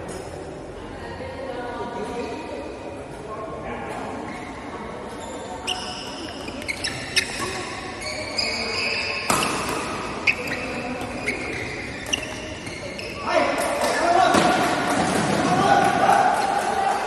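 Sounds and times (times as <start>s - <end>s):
shoes squeaking on court floor: 4.2s - 15.4s
rackets hitting shuttlecock: 9.1s - 12.8s, 13.4s - 16.8s.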